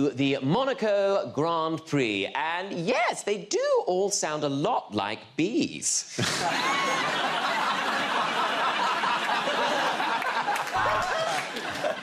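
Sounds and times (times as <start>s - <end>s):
studio audience laughing: 6.1s - 12.0s.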